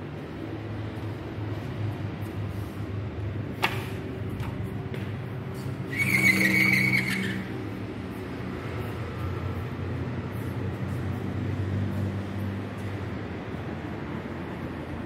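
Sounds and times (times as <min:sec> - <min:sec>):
city street traffic hum: 0:00.0 - 0:15.0
loud squeal: 0:05.9 - 0:07.7.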